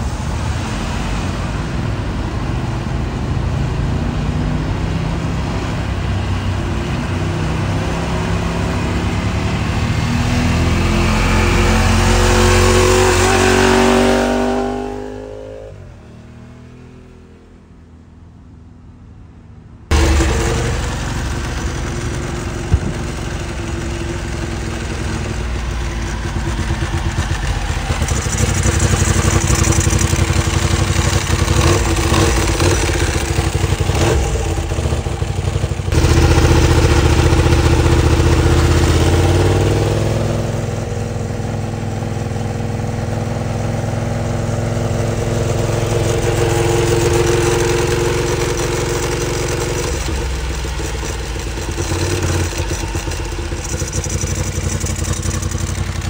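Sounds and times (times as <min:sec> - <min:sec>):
motorcycle engine running: 0:19.9 - 0:56.0.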